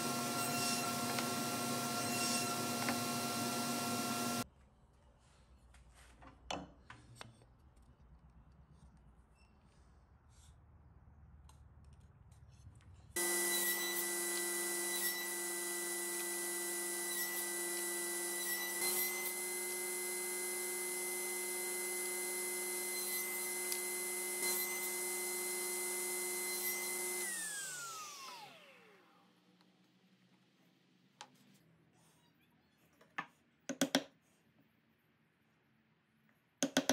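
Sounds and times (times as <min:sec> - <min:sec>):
table saw whining: 0:00.0 - 0:04.4, 0:13.2 - 0:29.2.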